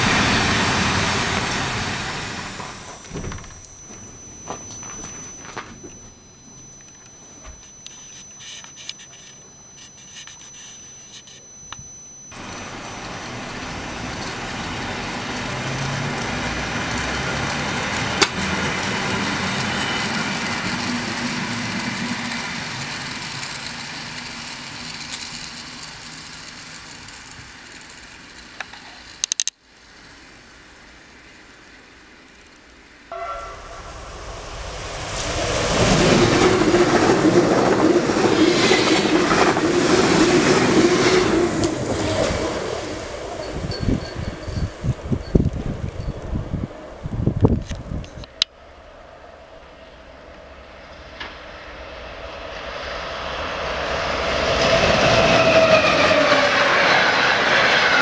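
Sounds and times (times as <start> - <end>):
train passing at speed: 0.0 - 3.0, 12.4 - 28.5, 33.1 - 47.1, 48.6 - 58.0
electric train motors whining: 0.0 - 48.5.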